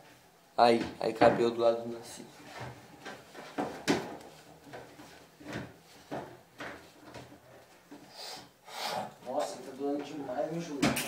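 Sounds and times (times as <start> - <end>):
faint knocks and rustles: 0.0 - 8.1.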